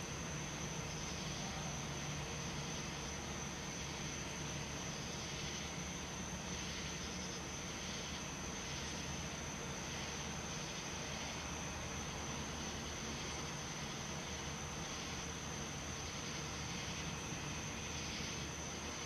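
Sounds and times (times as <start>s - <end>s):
constant high-pitched tone: 0.0s - 19.0s
low hum and hiss: 0.0s - 19.0s.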